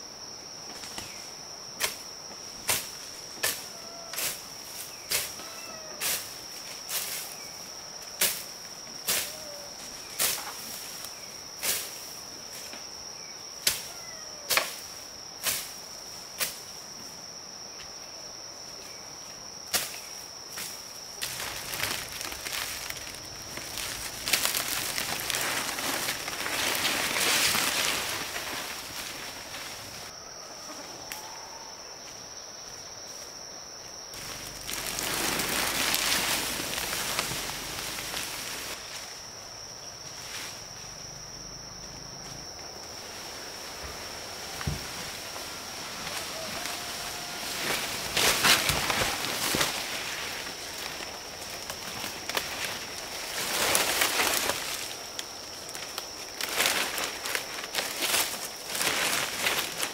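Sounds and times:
rustling and brushing: 0:19.8 - 0:30.1, 0:34.2 - 0:39.3.

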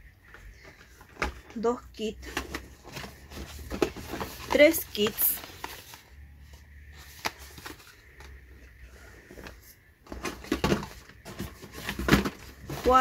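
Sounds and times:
cardboard boxes knocking and rustling: 0:02.2 - 0:05.9, 0:09.4 - 0:13.0.

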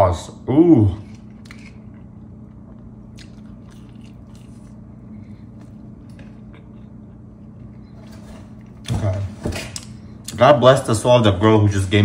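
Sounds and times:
steady low hum: 0:00.0 - 0:12.0
person chewing food: 0:01.0 - 0:08.9.

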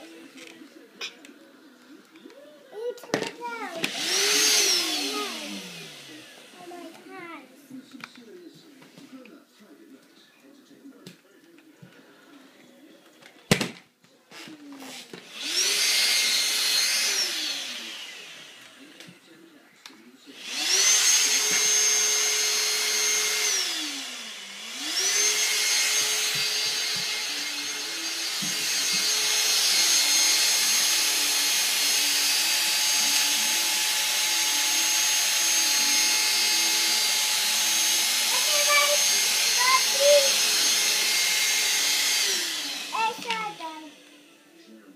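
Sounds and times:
handheld vacuum motor whining: 0:03.1 - 0:07.1, 0:14.3 - 0:19.4, 0:20.3 - 0:44.7.

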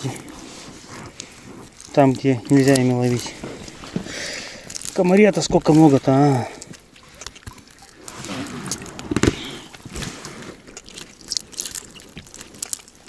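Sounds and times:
fish in net wet crackling: 0:00.0 - 0:13.0
small water splashes: 0:01.2 - 0:10.1.

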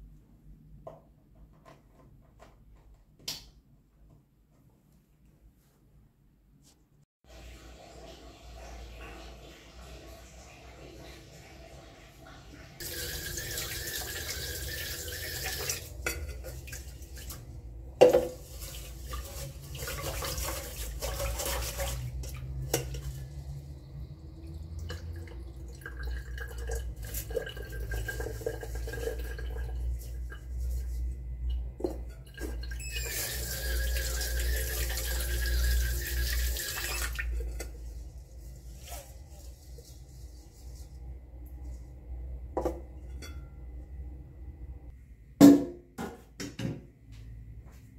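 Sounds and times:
tap water running into pot: 0:12.8 - 0:17.4, 0:18.0 - 0:23.4, 0:24.5 - 0:30.0, 0:31.8 - 0:37.7.

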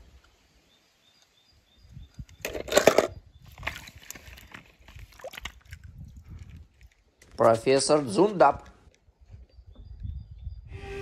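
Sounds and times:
water splashing and sloshing: 0:02.6 - 0:07.4.

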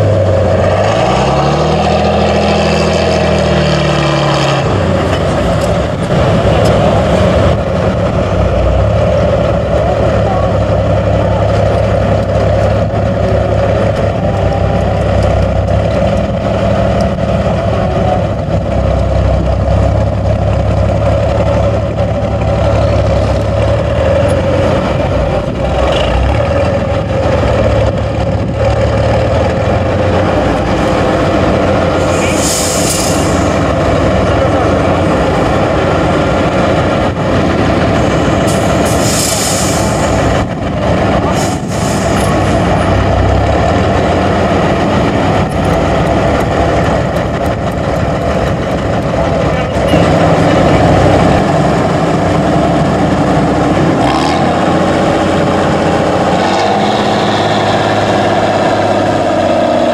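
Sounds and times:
truck diesel engine under load: 0:00.0 - 0:59.9
air brake hisses: 0:32.0 - 0:33.5, 0:38.9 - 0:40.2.

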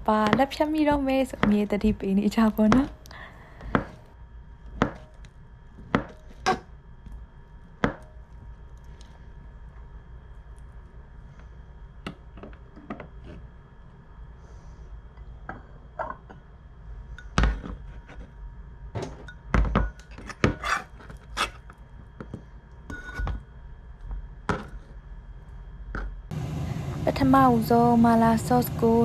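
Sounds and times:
utensils pots and dishes clinking: 0:15.4 - 0:16.4, 0:19.0 - 0:21.5.

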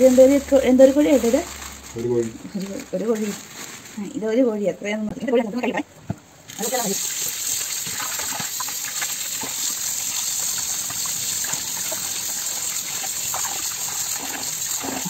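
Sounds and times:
tap water running into basin: 0:06.5 - 0:15.0
water splashing: 0:06.6 - 0:15.0.

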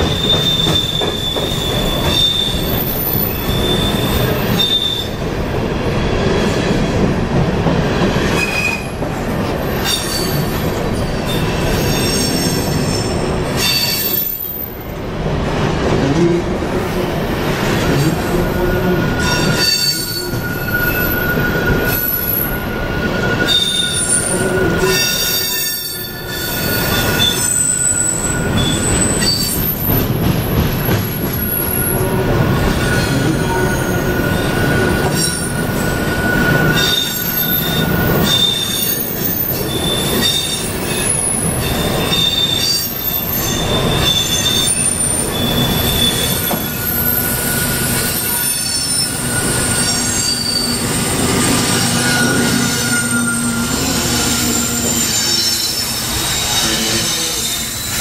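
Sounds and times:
high wheel squeals: 0:00.0 - 0:05.2, 0:18.4 - 0:30.1, 0:31.4 - 0:58.0
train wheels rumbling on bridge: 0:00.0 - 0:58.0.

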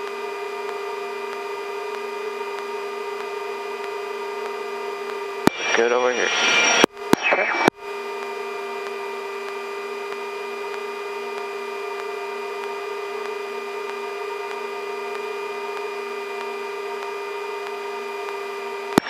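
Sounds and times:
helicopter turbine whine: 0:00.2 - 0:19.0
turbine and rotor hiss: 0:04.2 - 0:18.0.

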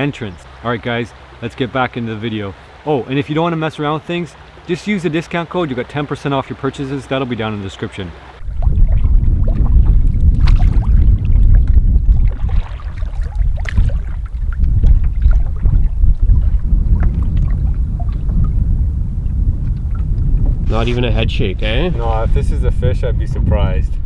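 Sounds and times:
paddle splashing water: 0:01.2 - 0:18.6
wind rumbling on microphone: 0:08.4 - 0:24.0.

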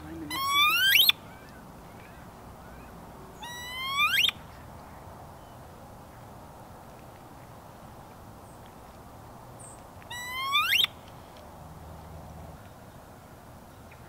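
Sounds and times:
wood duck whistle: 0:03.4 - 0:04.4, 0:10.1 - 0:10.9.

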